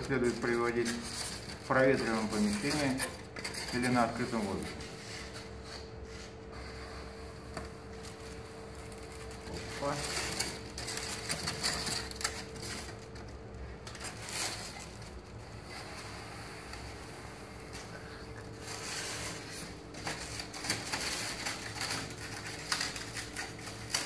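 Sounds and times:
foam sheet crunching and creaking: 0:00.0 - 0:04.7, 0:08.1 - 0:13.1.

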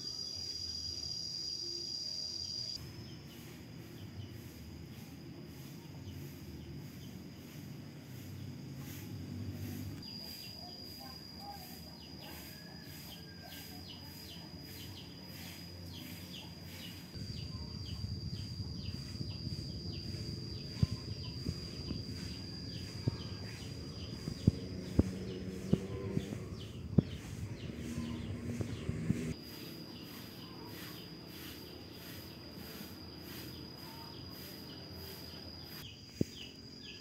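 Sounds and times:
steady high-pitched whine: 0:00.0 - 0:37.0
low rumble: 0:17.1 - 0:29.4.

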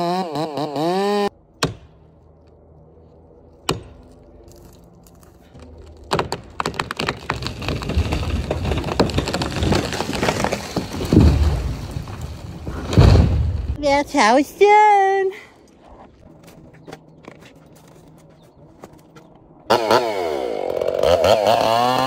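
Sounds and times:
chainsaw running: 0:00.0 - 0:01.3, 0:19.7 - 0:22.0
tree wood cracking and splintering: 0:03.5 - 0:13.8, 0:19.7 - 0:22.0
tree hitting the ground: 0:05.8 - 0:13.8.

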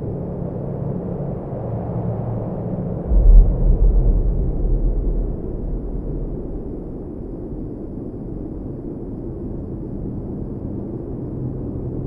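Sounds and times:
dark rumbling drone: 0:03.0 - 0:11.8.

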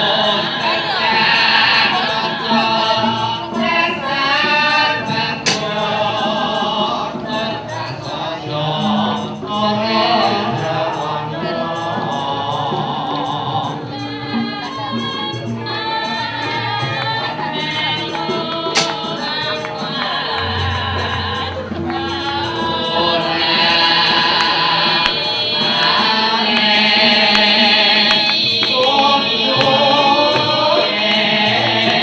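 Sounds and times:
voices singing: 0:00.0 - 0:32.0
sharp knock: 0:05.5 - 0:05.8
struck metal gamelan tones: 0:18.1 - 0:32.0.

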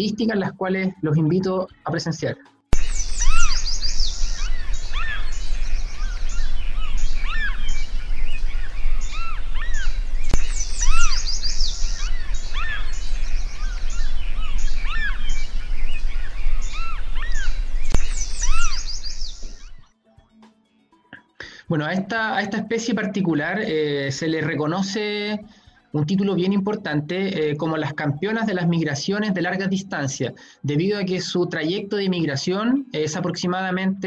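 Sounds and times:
gulls calling: 0:02.8 - 0:19.8
steady low hum: 0:02.8 - 0:19.8.

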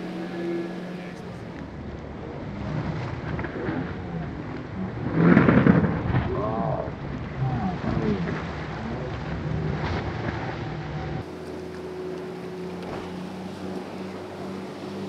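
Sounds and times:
spray and water rushing: 0:00.0 - 0:01.6, 0:11.2 - 0:15.0
boat engines revving: 0:00.0 - 0:15.0
boat hull slamming on water: 0:12.7 - 0:13.8.

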